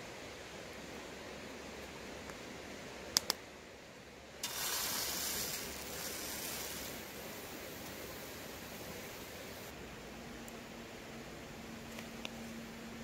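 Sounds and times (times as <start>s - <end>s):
batter sizzling in a hot pan: 4.4s - 7.1s.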